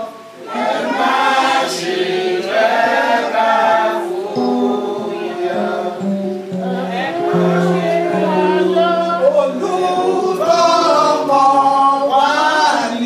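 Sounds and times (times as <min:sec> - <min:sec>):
voices singing along: 0:00.0 - 0:13.0
woman singing into a microphone: 0:04.0 - 0:11.2.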